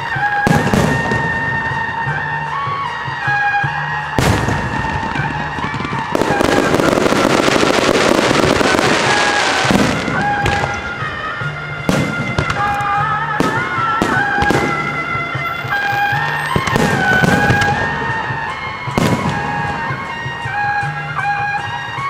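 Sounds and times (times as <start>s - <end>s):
fireworks crackling and banging: 0.0s - 22.0s
music melody: 0.0s - 22.0s.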